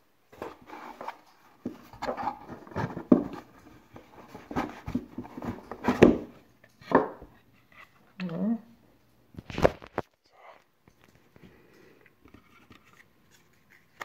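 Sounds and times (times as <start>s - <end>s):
cardboard boxes knocking and scraping: 0.4s - 7.2s.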